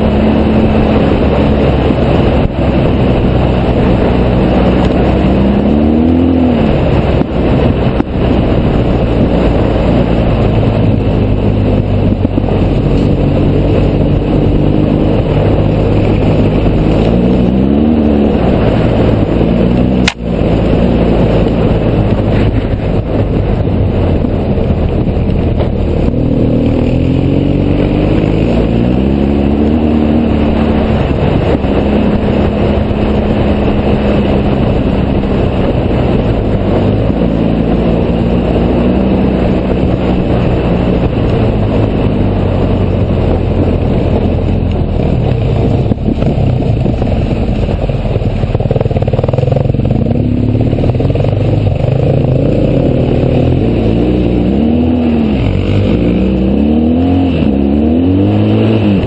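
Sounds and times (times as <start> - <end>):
motorcycle engine revving: 0.0 - 59.0
wind rush on microphone: 0.0 - 59.0.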